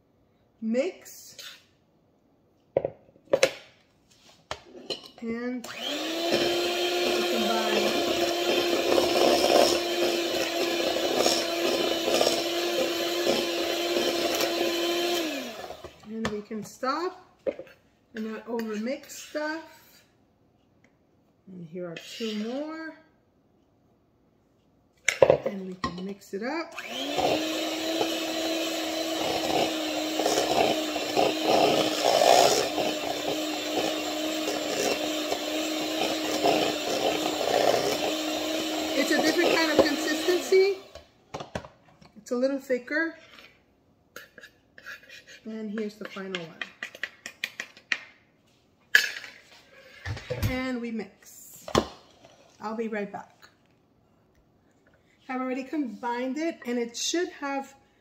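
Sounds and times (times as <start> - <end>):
electric mixer running: 5.6 - 16.0, 26.8 - 41.1
beaters scraping bowl: 5.7 - 16.4, 21.9 - 22.7, 26.8 - 41.1, 44.2 - 47.1.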